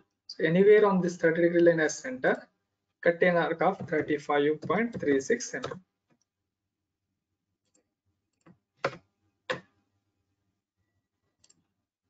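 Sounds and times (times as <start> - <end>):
computer mouse clicks: 11.4 - 11.7.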